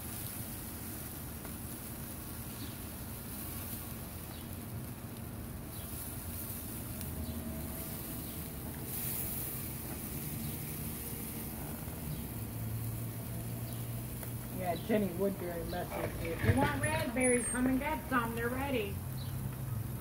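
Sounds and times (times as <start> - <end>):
faint hiss: 0.0 - 20.0
low engine-like hum: 4.6 - 20.0.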